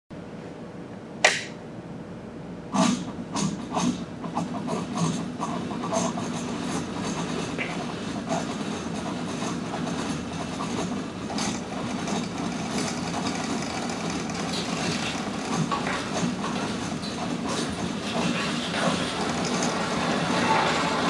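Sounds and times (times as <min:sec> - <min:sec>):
bicycle wheels whirring and rattling: 0:06.6 - 0:21.0.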